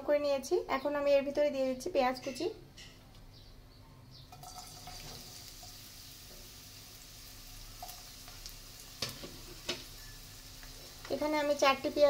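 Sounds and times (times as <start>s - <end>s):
onion sizzling in hot oil: 4.3s - 12.0s.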